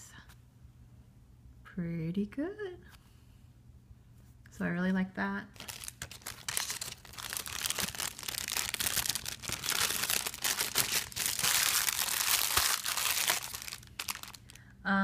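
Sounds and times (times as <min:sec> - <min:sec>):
plastic bag crinkling: 0:05.6 - 0:14.6.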